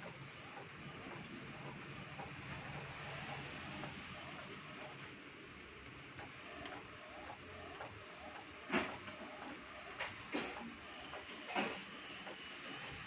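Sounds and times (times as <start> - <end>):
inkjet printer printing: 0.0 - 5.2, 6.1 - 13.0
printer clacks: 6.2 - 13.0.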